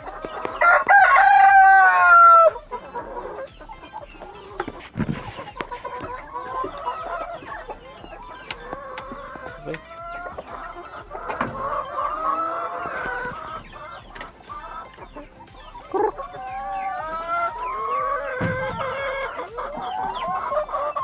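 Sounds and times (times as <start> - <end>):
chickens clucking: 0.0 - 21.0
rooster crowing: 0.5 - 2.7
sharp knocks: 4.6 - 6.8, 18.4 - 19.1.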